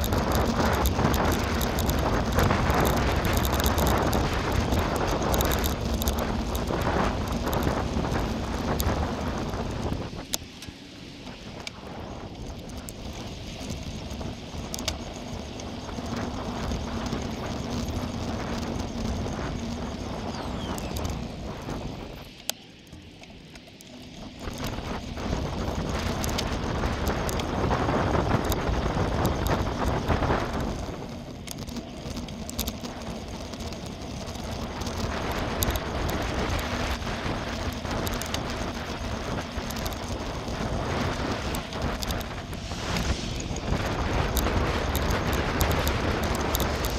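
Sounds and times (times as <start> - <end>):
bicycle tyres rolling on gravel: 0.0 - 46.9
bike rattles and clicks: 0.0 - 46.9
wind noise: 0.0 - 46.9.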